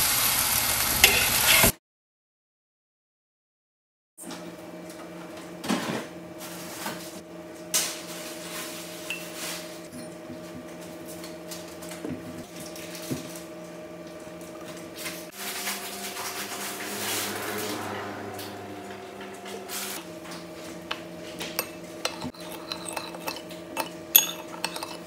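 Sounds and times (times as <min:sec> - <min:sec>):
low hum: 0:15.8 - 0:25.0
spoons clinking against ceramic: 0:21.5 - 0:25.0.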